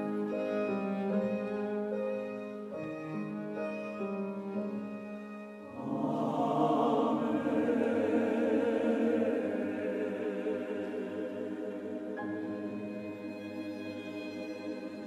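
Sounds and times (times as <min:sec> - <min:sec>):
cello: 0:00.0 - 0:15.0
piano: 0:00.0 - 0:15.0
violin: 0:00.0 - 0:15.0
choir singing: 0:05.7 - 0:15.0.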